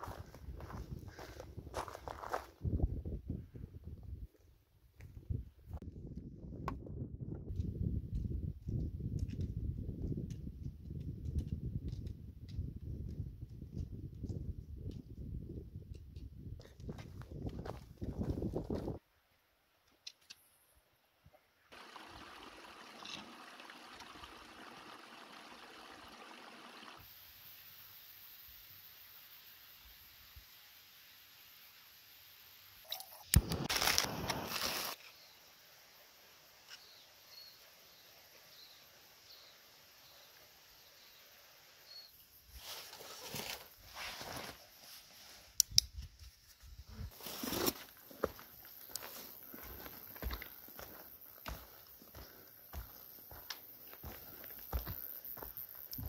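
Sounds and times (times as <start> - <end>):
stream splashing over rocks: 21.7 - 27.0
faint bird chirps: 36.7 - 42.3
footsteps: 47.1 - 56.0.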